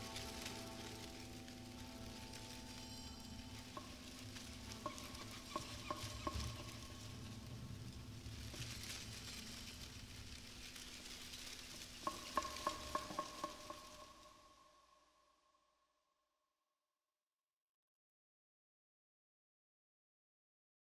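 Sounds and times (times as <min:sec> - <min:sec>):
faint crackling hiss: 0:00.0 - 0:15.2.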